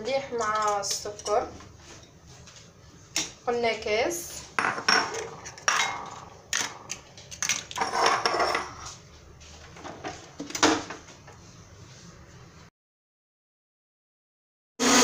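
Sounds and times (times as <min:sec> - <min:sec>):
dishes and utensils clinking: 0:04.6 - 0:09.0.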